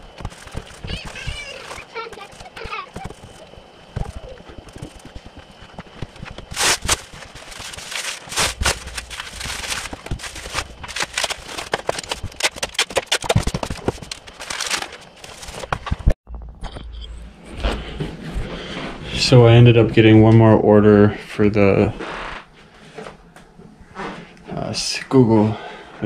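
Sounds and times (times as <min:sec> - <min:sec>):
bubble wrap crinkling: 0:00.0 - 0:16.2.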